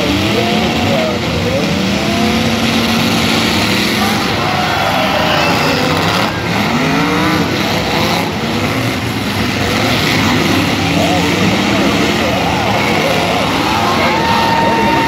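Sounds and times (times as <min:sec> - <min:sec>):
many car engines revving: 0:00.0 - 0:15.0.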